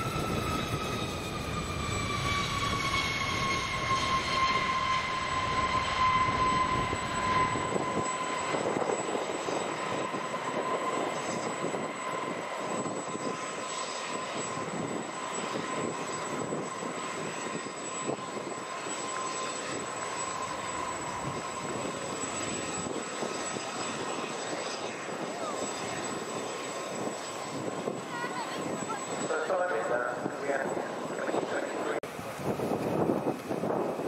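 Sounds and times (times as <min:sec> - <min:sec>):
jet engines whining: 0:00.0 - 0:34.0.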